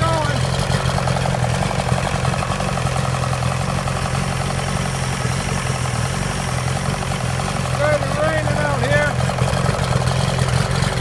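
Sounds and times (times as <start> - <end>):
outboard motor running: 0.0 - 11.0.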